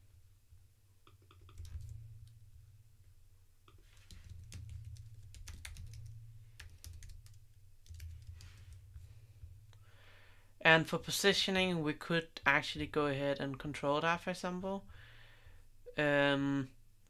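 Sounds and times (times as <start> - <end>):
low steady hum: 0.0 - 17.0
keyboard typing: 1.1 - 2.0, 3.7 - 8.8.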